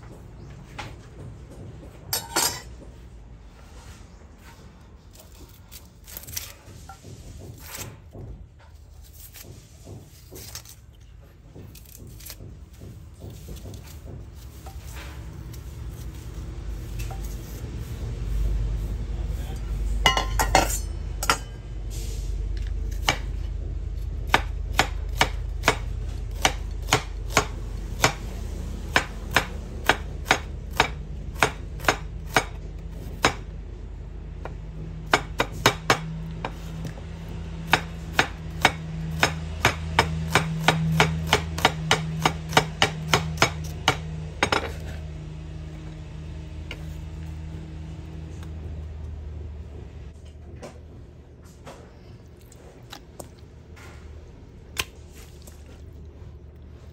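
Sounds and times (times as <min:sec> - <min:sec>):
low steady hum: 0:00.0 - 0:56.9
knife slicing onion on board: 0:05.1 - 0:18.0, 0:22.6 - 0:33.5, 0:35.1 - 0:45.0.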